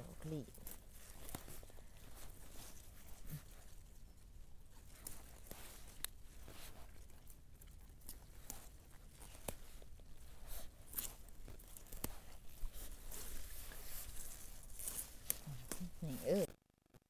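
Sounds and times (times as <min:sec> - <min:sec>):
plants rustling and snapping: 0:00.0 - 0:04.0, 0:04.6 - 0:16.5.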